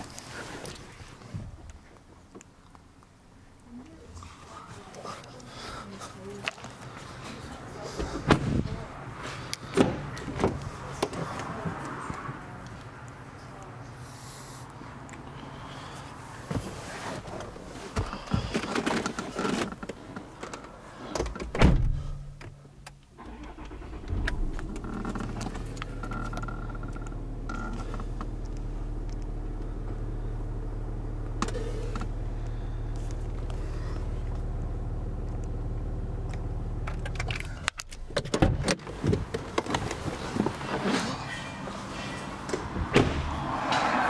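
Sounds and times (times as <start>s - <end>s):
car engine starting and idling: 14.0s - 44.0s
knocks and rustling in cabin: 16.4s - 20.6s, 21.2s - 22.6s, 38.0s - 41.2s, 42.5s - 43.3s.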